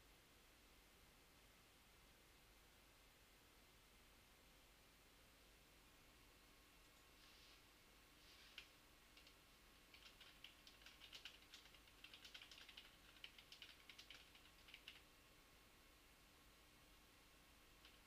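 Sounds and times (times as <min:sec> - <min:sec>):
typing on computer keyboard: 0:08.5 - 0:15.1, 0:17.8 - 0:18.0.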